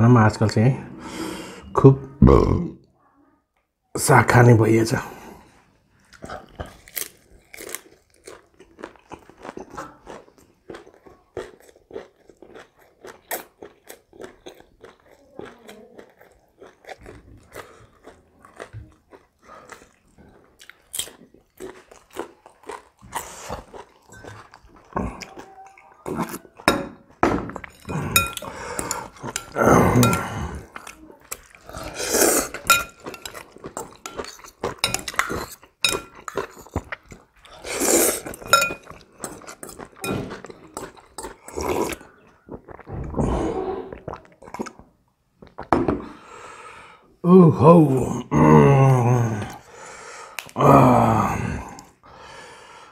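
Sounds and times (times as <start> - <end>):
chewing and crunching food: 5.8 - 45.8
utensils clinking in bowl: 26.6 - 30.9, 32.4 - 36.8, 38.2 - 41.1
wet mouth sounds: 27.5 - 45.7.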